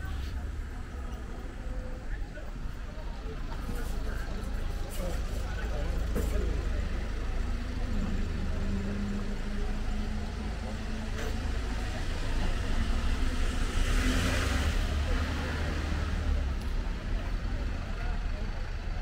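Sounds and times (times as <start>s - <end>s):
car passing with tyre noise: 6.6s - 17.6s.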